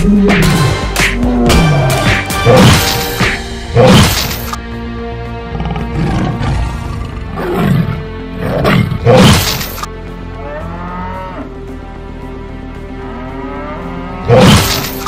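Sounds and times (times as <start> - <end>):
background music: 0.0 - 15.0
lion roars and growls: 5.5 - 9.7, 13.2 - 15.0.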